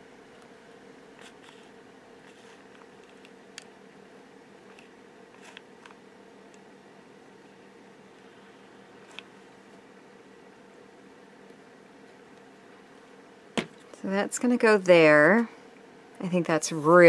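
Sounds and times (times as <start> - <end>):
steady low hum: 0.0 - 17.0
faint clicks and handling noises: 1.2 - 3.8, 4.6 - 6.7, 9.0 - 9.8, 11.4 - 12.5.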